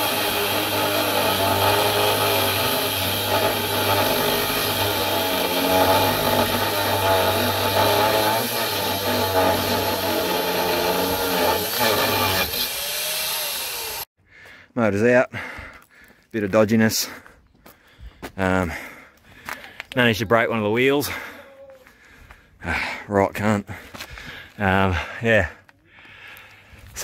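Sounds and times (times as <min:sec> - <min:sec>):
angle grinder cutting steel: 0:00.0 - 0:14.1.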